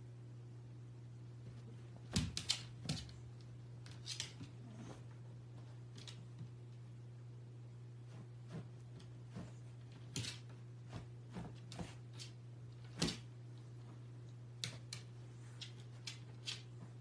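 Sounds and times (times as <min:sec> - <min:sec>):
paws and bed tapping on floor: 0:08.1 - 0:13.3.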